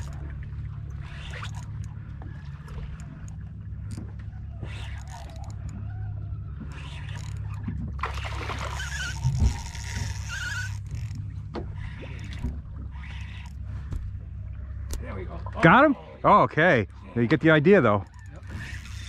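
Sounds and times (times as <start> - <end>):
fishing reel whirring: 0.0 - 13.7, 18.0 - 19.0
outboard motor running: 0.0 - 19.0.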